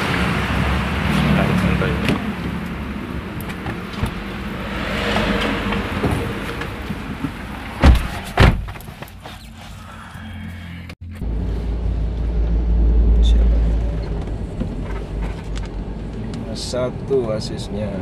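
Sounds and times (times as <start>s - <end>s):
car door thumping shut: 7.8s - 8.8s.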